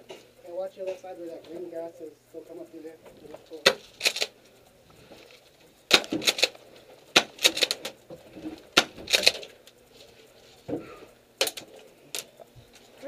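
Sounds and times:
airsoft gunfire clacks: 5.8s - 9.5s.

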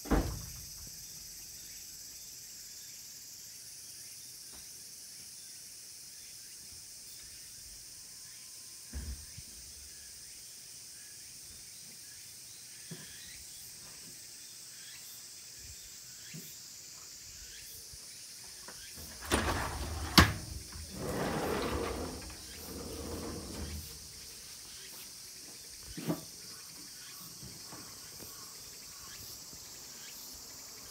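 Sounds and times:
insects chirring: 0.0s - 30.9s
noisy shuffling: 19.0s - 24.1s.

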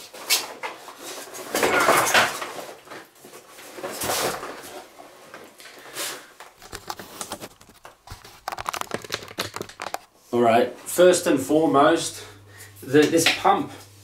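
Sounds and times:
plastic parts scraping: 6.4s - 10.1s.

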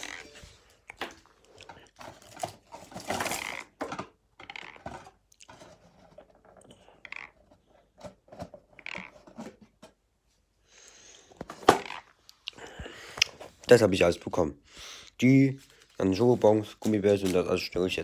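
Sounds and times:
plastic wrappers crinkling: 0.0s - 5.8s, 15.2s - 18.0s.

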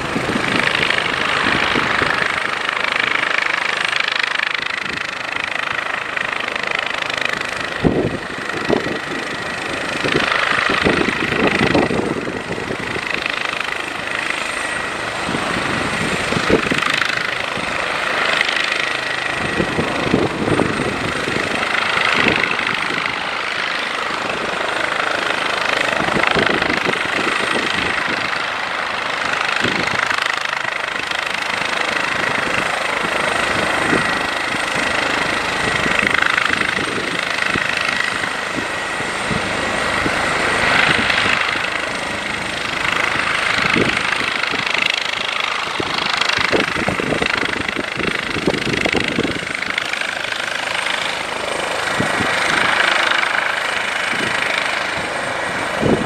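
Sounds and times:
helicopter turbine whine: 0.0s - 56.0s
turboprop plane taxiing: 0.0s - 56.0s.

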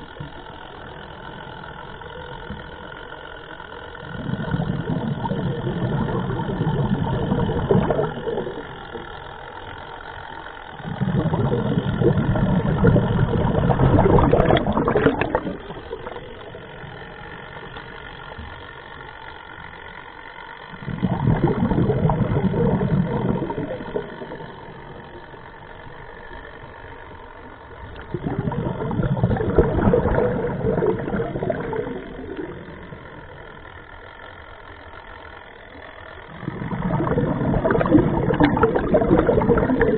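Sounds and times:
diver exhaling bubbles underwater: 4.0s - 9.2s, 10.7s - 18.3s, 20.7s - 25.2s, 27.9s - 33.6s, 36.2s - 39.9s.

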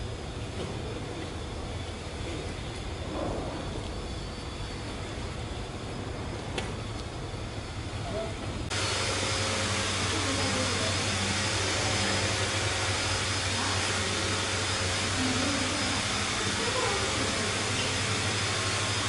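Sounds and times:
electric blower rushing air: 8.7s - 19.0s.

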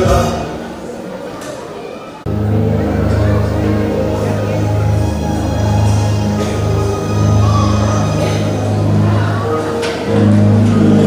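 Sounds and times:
loud music with bass notes: 2.3s - 11.0s
choir singing: 3.2s - 11.0s.

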